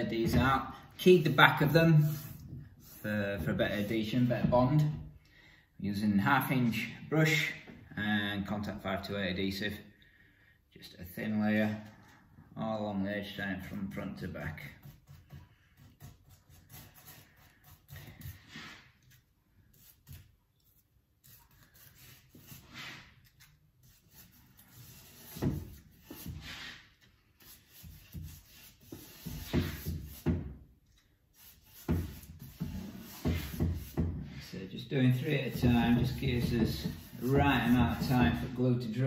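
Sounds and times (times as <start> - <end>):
brush rubbing on wood: 1.6 - 3.1, 14.8 - 30.4, 31.3 - 38.6.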